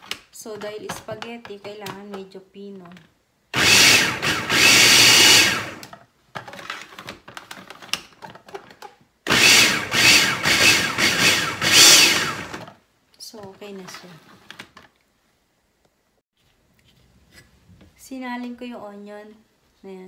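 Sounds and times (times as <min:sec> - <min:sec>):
food processor mincing onion: 0:03.6 - 0:05.9, 0:09.3 - 0:12.7.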